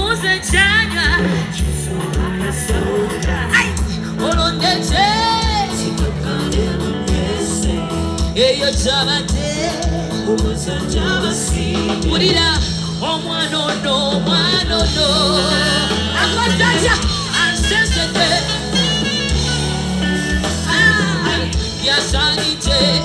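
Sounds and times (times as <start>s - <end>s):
woman singing into a microphone: 0.0s - 7.8s, 20.4s - 23.0s
live band music: 0.0s - 23.0s
backing singers: 1.1s - 23.0s
saxophone: 15.4s - 21.8s.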